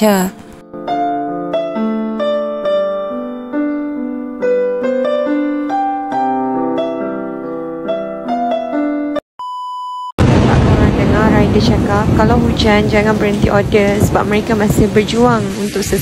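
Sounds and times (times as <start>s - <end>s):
slow piano music: 0.0s - 9.3s.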